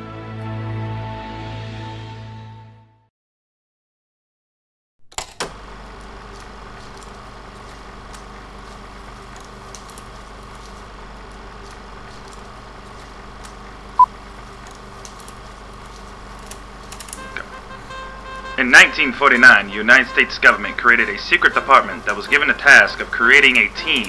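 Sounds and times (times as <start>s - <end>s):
film soundtrack hiss and hum: 5.1s - 24.0s
film crackles and pops: 5.6s - 24.0s.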